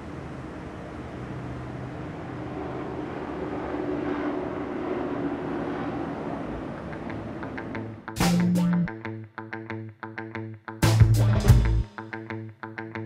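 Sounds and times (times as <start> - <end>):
faint hum: 0.0 - 8.9.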